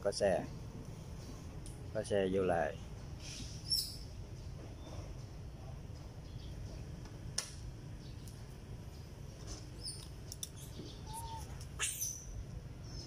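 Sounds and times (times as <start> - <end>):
animal chirps and squeaks: 3.2 - 4.1, 9.8 - 13.0.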